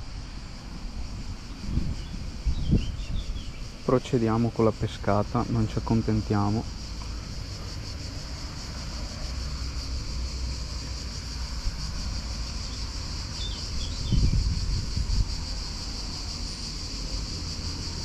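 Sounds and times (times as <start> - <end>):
wind buffeting microphone: 0.0 - 3.9, 13.3 - 15.8
insect hiss: 0.0 - 18.0.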